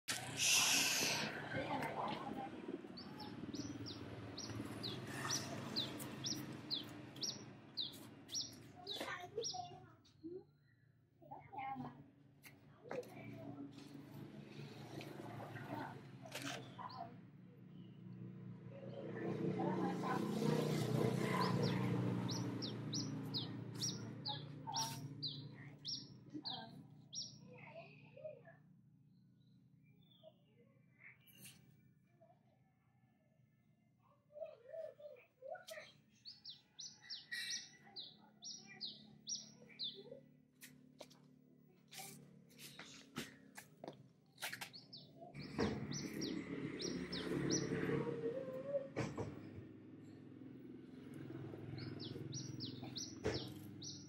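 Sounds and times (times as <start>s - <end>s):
small bird chirping: 3.0s - 10.9s, 21.4s - 28.3s, 34.4s - 40.2s, 44.4s - 47.8s, 50.9s - 54.0s.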